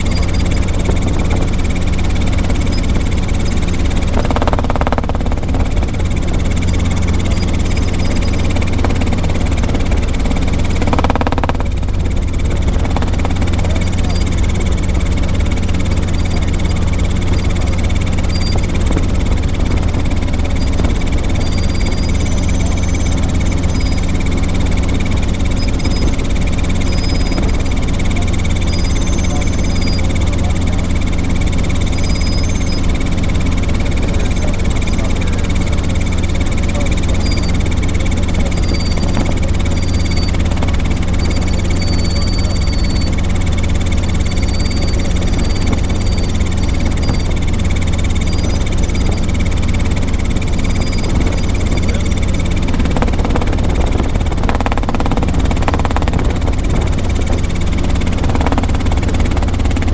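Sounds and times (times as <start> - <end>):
constant low hum: 0.0 - 59.9
helicopter rotor and engine drone: 0.0 - 59.9.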